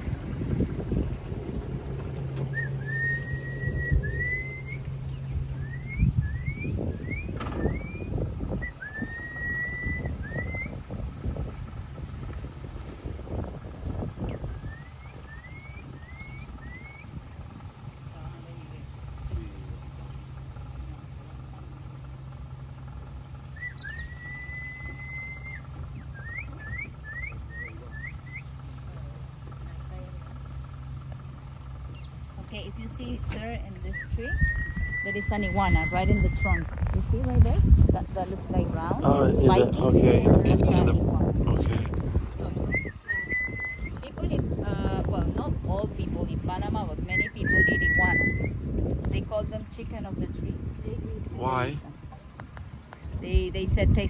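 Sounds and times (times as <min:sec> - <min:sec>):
low boat rumble: 0:00.0 - 0:54.0
steady low hum: 0:00.0 - 0:54.0
clear whistles: 0:02.5 - 0:10.8, 0:14.3 - 0:17.2, 0:23.5 - 0:28.6, 0:33.9 - 0:36.7, 0:42.6 - 0:44.1, 0:47.0 - 0:48.6.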